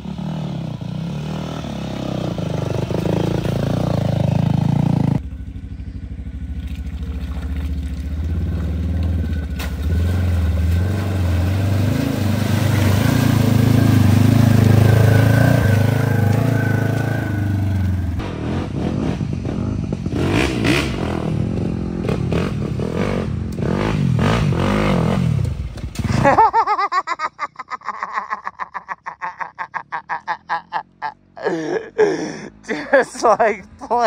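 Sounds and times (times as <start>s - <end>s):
dirt bike engine revving: 0.0s - 5.3s, 7.7s - 26.5s
utility vehicle engine running: 0.0s - 26.5s.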